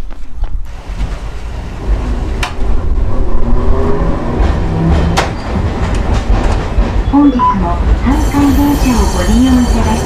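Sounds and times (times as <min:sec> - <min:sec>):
rumble of wheels on rails: 0:00.0 - 0:10.0.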